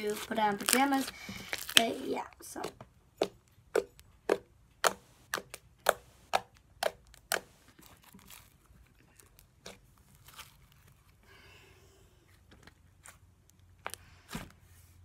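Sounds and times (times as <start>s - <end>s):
slime squishing: 0.0s - 11.1s
slime popping: 0.1s - 2.0s, 2.6s - 8.4s.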